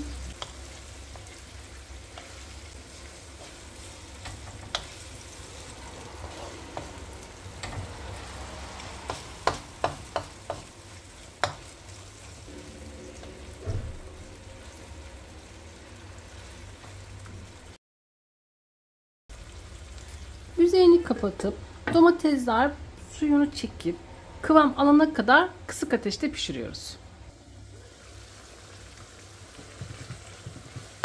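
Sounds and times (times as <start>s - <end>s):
food sizzling in a pan: 0.0s - 17.8s, 19.3s - 21.8s, 27.3s - 31.0s
wooden spoon scraping and knocking pan: 29.5s - 31.0s.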